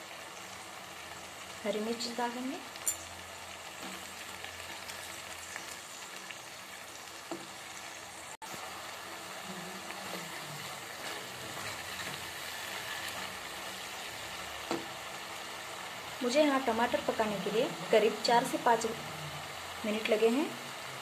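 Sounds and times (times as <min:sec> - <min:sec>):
tomatoes sizzling in oil: 0:00.0 - 0:21.0
spatula stirring: 0:08.5 - 0:15.1.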